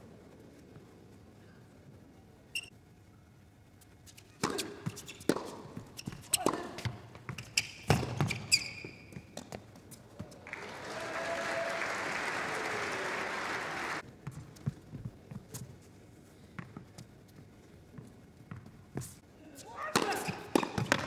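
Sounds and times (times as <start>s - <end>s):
shoe squeak on court: 2.5s - 2.7s, 4.1s - 9.5s
tennis ball strikes: 4.3s - 8.5s, 19.9s - 21.0s
audience applause: 10.4s - 14.0s.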